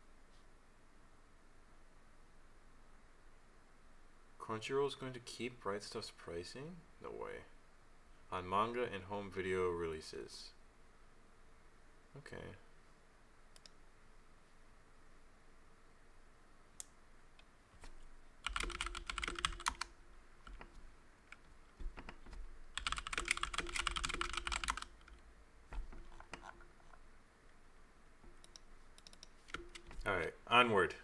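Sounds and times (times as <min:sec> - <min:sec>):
keyboard typing clicks: 0:18.4 - 0:27.0, 0:28.3 - 0:30.1.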